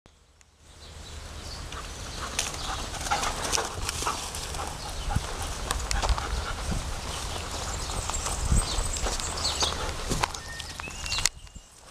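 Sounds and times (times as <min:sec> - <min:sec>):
wind rumbling on microphone: 0:00.7 - 0:11.9
footsteps running through long grass: 0:02.2 - 0:11.2.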